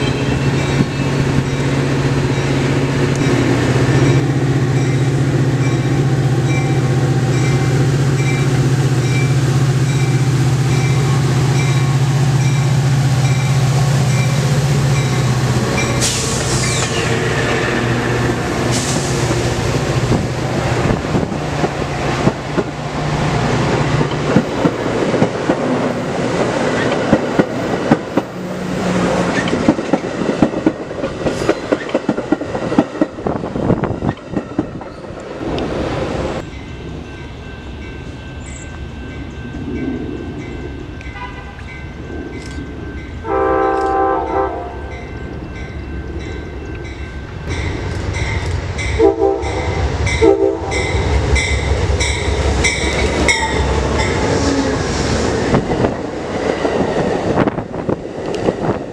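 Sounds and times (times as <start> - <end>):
locomotive bell dinging: 0.0 - 18.4, 36.4 - 54.3
diesel locomotive engine: 0.0 - 58.9
train wheels clacking on rail joints: 29.2 - 35.3.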